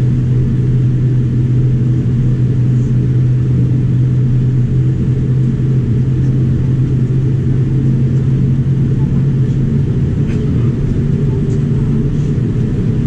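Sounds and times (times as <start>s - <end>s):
aircraft cabin engine rumble and hum: 0.0s - 13.0s.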